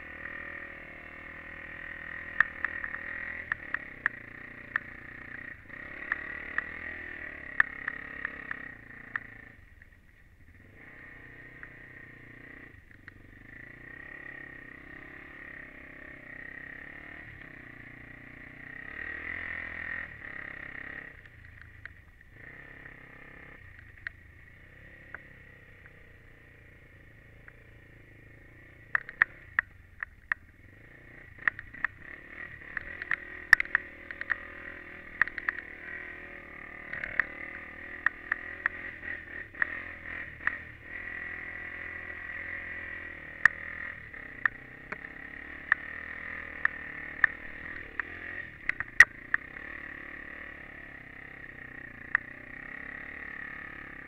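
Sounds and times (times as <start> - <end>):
quad engine revving: 0.0 - 9.6, 10.6 - 21.2, 22.4 - 23.7, 30.6 - 54.0
sharp clicks and knocks: 2.2 - 6.8, 28.8 - 30.5, 31.3 - 35.8, 36.8 - 38.8, 43.4 - 49.6, 52.0 - 52.4.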